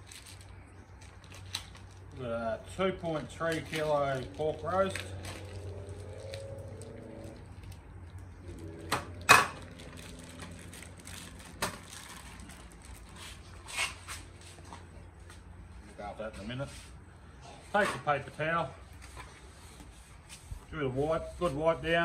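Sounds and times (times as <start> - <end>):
plastic packaging crinkling and tearing: 0.0 - 2.2, 3.0 - 14.0.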